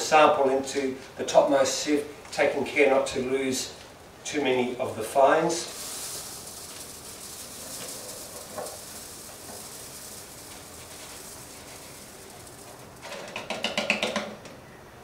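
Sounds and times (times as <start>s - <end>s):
soil grains hissing onto sieve mesh: 5.3s - 13.4s.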